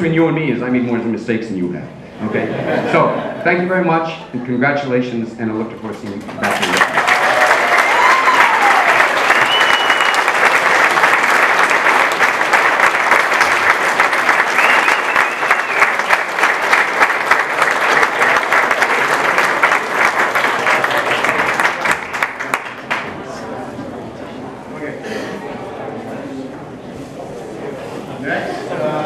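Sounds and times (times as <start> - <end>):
audience applauding: 6.4 - 23.4.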